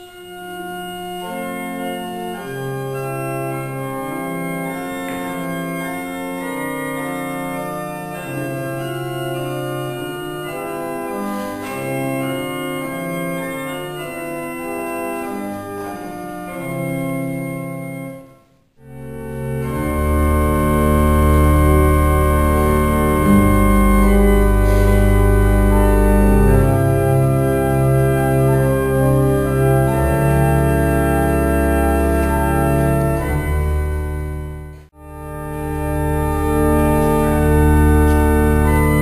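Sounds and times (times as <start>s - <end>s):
organ chords: 0.0s - 39.0s.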